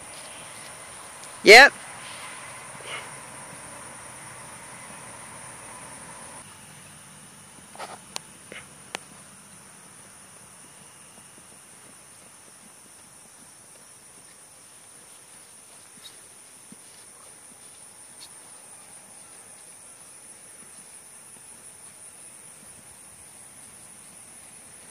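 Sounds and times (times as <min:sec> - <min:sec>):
high-pitched insect chorus: 0:00.0 - 0:24.9.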